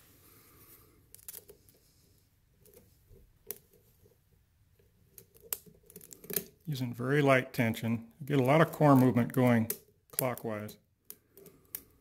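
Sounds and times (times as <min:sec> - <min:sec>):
lock pick clicking and scraping: 0:05.1 - 0:06.7, 0:11.0 - 0:12.0.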